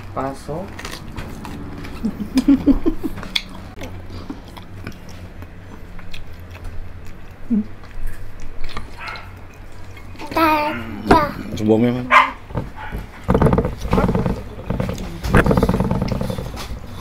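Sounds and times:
chewing crispy food: 0:00.0 - 0:10.4
mouth clicks and smacks: 0:03.1 - 0:10.2.

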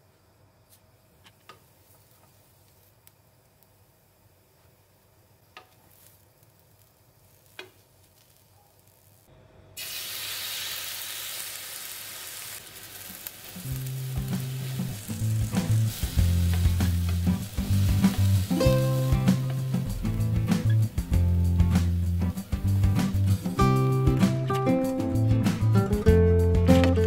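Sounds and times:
tomato slices sizzling in a pan: 0:05.4 - 0:09.1, 0:09.8 - 0:25.8.

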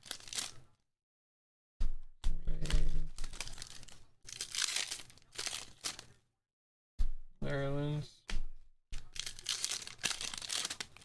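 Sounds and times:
foil wrapper crinkling and tearing: 0:00.0 - 0:00.7, 0:02.6 - 0:06.2, 0:09.0 - 0:11.0.

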